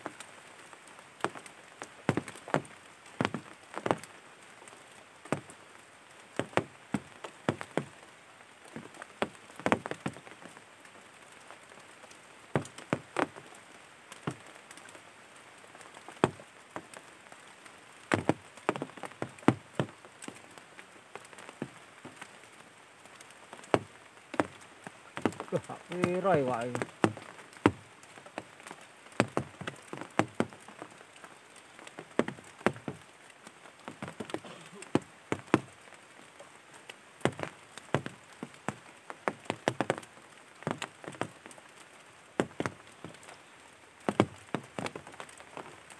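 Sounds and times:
faint steady hiss: 0.0 - 45.9
drops tapping on a surface: 25.2 - 27.8.

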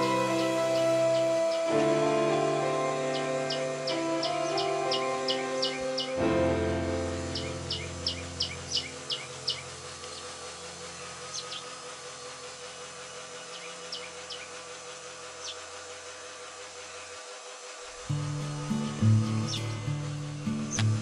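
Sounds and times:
sparrows chirping: 0.0 - 6.3, 7.2 - 16.2, 18.1 - 21.0
background music held notes: 0.0 - 11.6, 18.0 - 21.0.

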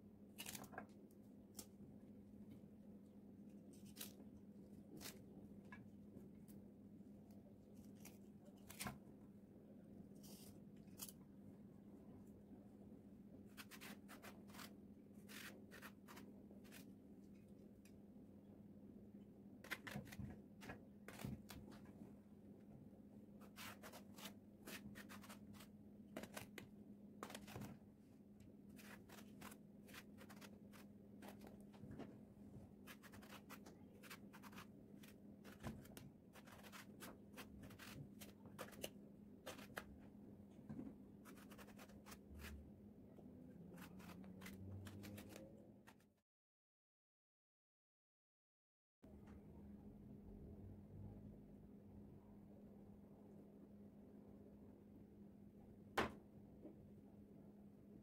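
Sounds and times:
knife cutting vegetables: 13.5 - 16.9, 32.8 - 39.9, 43.7 - 45.5.

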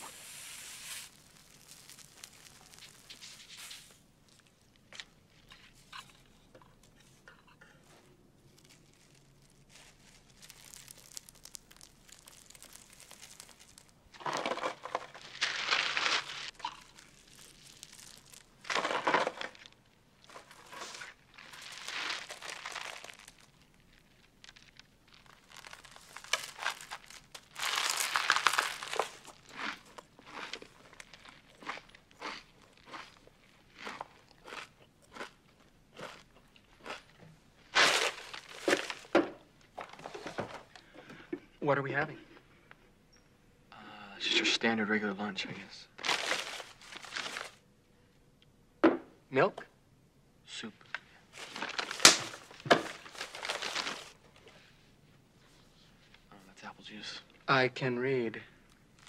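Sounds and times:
paper bag rustling: 0.0 - 4.0, 7.8 - 29.6, 37.7 - 40.7, 46.0 - 47.6, 51.2 - 54.6
plastic bag crinkling: 0.0 - 6.0, 7.8 - 35.4, 36.0 - 40.8, 46.0 - 47.6, 50.9 - 54.6, 58.7 - 59.0.

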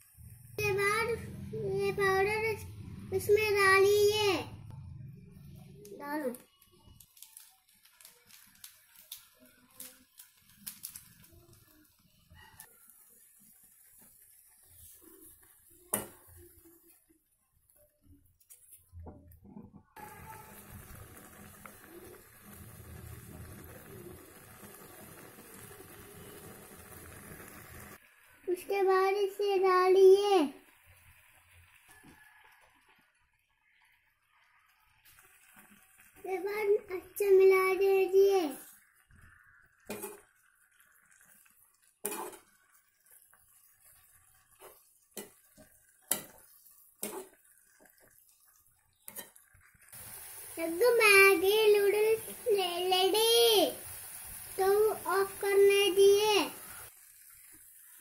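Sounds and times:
noodles simmering in water: 5.5 - 58.0
metal spoon scraping a pan: 39.8 - 40.4, 42.0 - 42.6, 43.9 - 47.4, 49.0 - 49.5.

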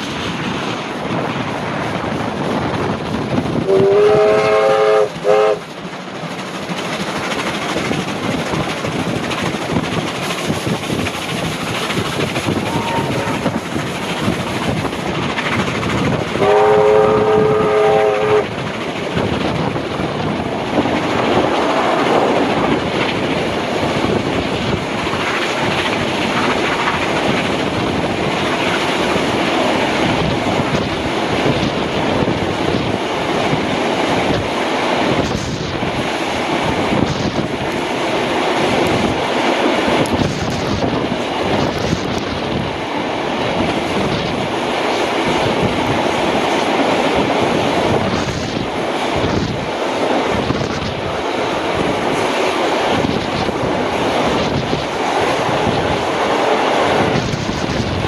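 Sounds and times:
train rumbling on rails: 0.0 - 58.0
steam locomotive whistle: 3.6 - 5.6, 12.6 - 13.6, 16.4 - 18.5.

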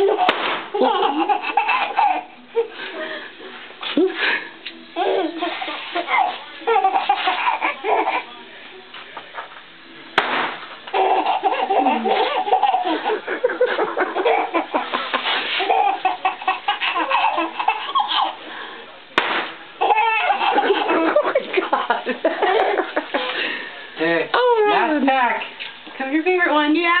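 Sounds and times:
baby laughing: 0.0 - 2.7, 5.0 - 8.2, 10.9 - 18.4, 19.8 - 22.8
sharp crack: 0.3 - 0.8, 10.2 - 10.9, 19.2 - 19.6.

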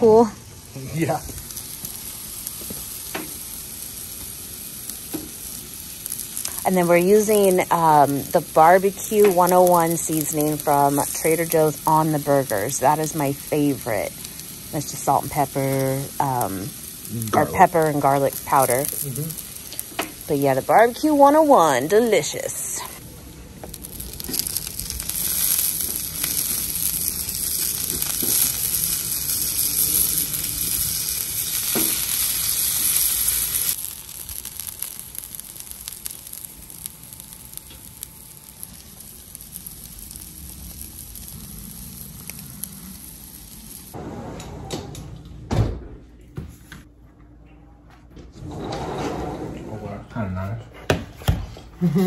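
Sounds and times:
burger patties sizzling on griddle: 0.2 - 44.0.

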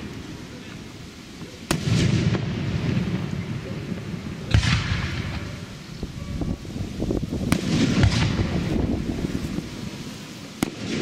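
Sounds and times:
firework hissing trail: 0.0 - 11.0
small firework pops: 4.5 - 5.6, 10.6 - 11.0.

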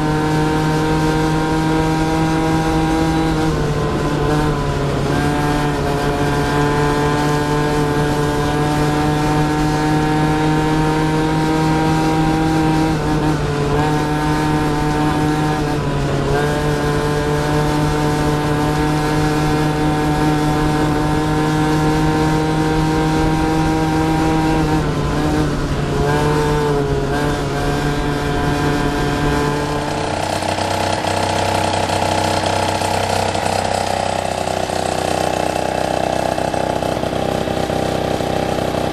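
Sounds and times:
scooter engine at high revs: 0.0 - 38.9.

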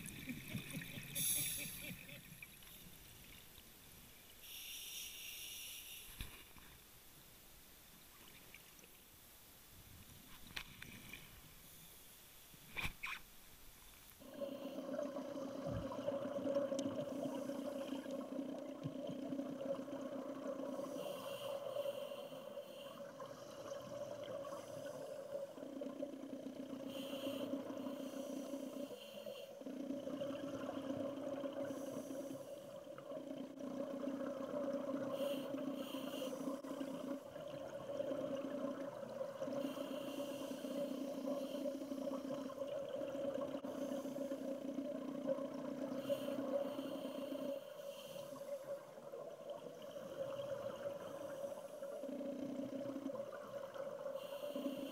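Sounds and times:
exhaled bubbles: 14.2 - 21.8
diver breathing through regulator: 20.6 - 23.7, 26.8 - 29.9, 31.6 - 32.8, 35.1 - 37.2, 39.4 - 42.6, 43.6 - 44.9, 45.8 - 48.7, 54.1 - 54.9.

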